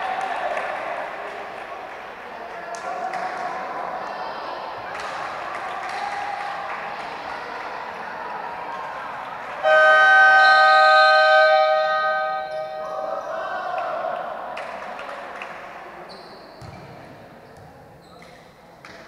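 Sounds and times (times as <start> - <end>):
timekeeper's horn blast: 9.6 - 13.4.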